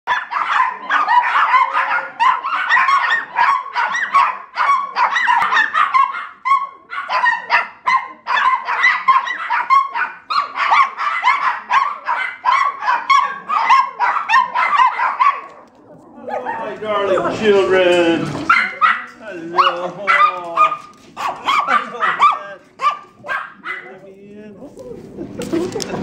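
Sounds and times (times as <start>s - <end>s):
small dogs barking and yipping: 0.1s - 24.1s.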